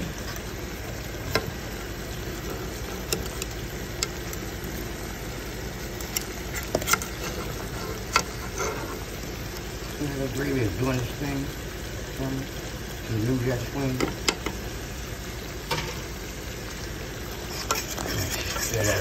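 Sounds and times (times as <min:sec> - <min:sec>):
gravy simmering in skillet: 0:00.0 - 0:19.0
metal spatula scraping pan: 0:06.4 - 0:09.1, 0:17.4 - 0:19.0.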